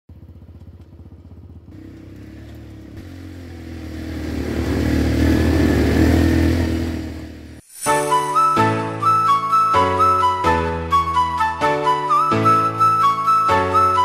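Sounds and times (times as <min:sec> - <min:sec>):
quad bike engine running: 0:00.1 - 0:07.6.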